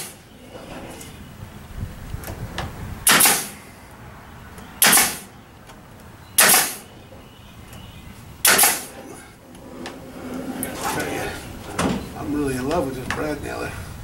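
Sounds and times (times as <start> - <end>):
nail gun firing with hiss: 3.0 - 3.6, 4.8 - 5.3, 6.4 - 6.8, 8.4 - 9.0.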